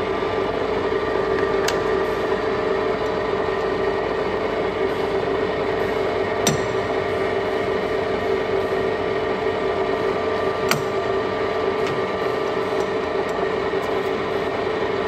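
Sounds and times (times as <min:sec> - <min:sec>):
lathe whining: 0:00.0 - 0:15.0
sharp metallic click: 0:06.4 - 0:06.8.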